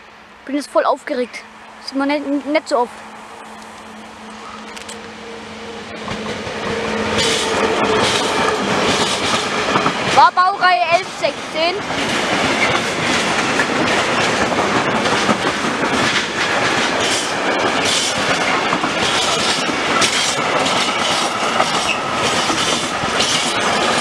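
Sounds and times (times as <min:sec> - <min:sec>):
train wheels rushing on rail: 0:00.0 - 0:24.0
wheels clacking over rail joints: 0:06.0 - 0:24.0.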